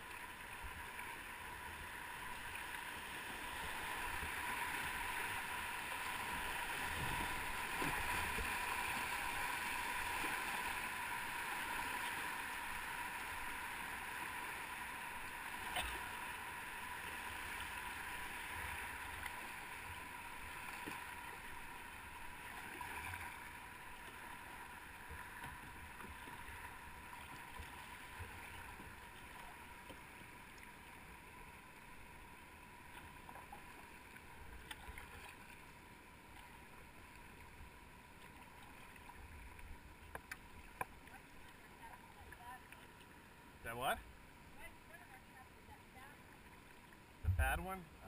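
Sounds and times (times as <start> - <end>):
water rushing over rapids: 0.0 - 35.8.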